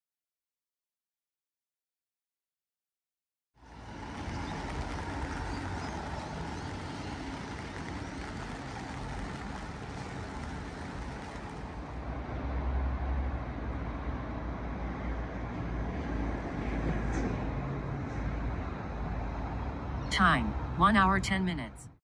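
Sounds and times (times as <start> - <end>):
deep rumble: 3.6 - 12.2
road traffic noise: 3.6 - 21.7.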